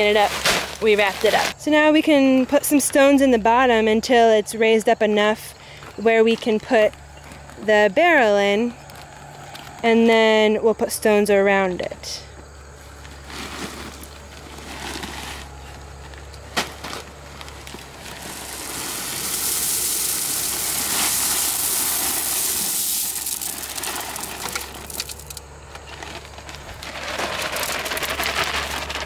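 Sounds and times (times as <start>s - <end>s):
gravel pouring from plastic bag: 16.6s - 29.0s.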